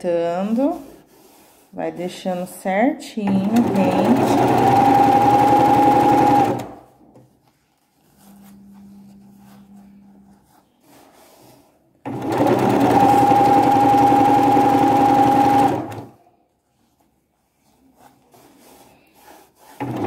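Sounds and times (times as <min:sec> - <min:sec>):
sewing machine stitching: 0:03.2 - 0:06.9, 0:12.0 - 0:16.2, 0:19.2 - 0:20.0
faint low hum: 0:08.1 - 0:10.6.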